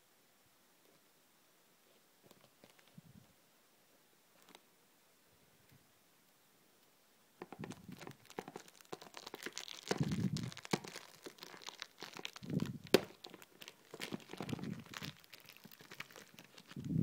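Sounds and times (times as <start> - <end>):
cellophane crinkling and tearing: 7.4 - 17.0.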